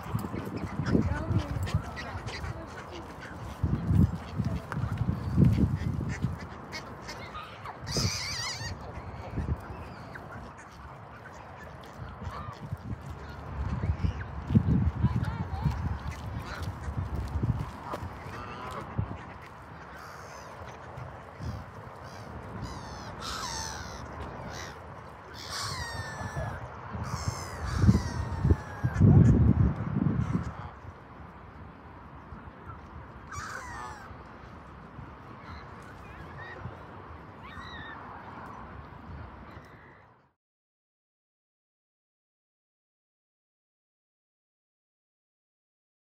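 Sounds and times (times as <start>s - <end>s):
geese honking: 0.0s - 13.7s
ducks quacking: 0.0s - 14.3s, 15.0s - 29.6s
gulls calling: 0.0s - 14.4s, 15.0s - 29.4s, 32.7s - 34.2s.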